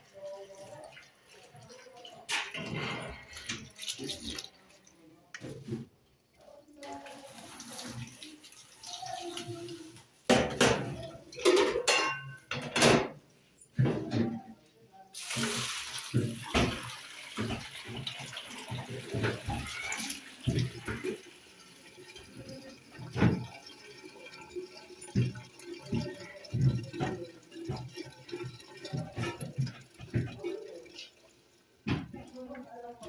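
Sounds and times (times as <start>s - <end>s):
kitchen tap running: 0.0s - 5.7s, 6.8s - 12.7s, 15.2s - 33.0s
water splashing and draining: 0.0s - 11.5s, 15.2s - 33.0s
metal pot clanking: 10.3s - 13.2s, 21.9s - 32.2s.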